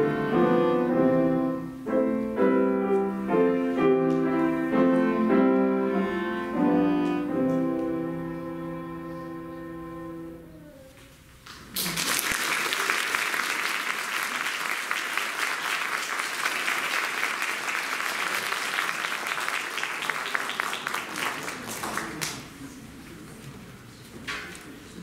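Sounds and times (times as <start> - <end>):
piano trio chord: 0.0 - 10.7
audience applause: 11.6 - 22.7.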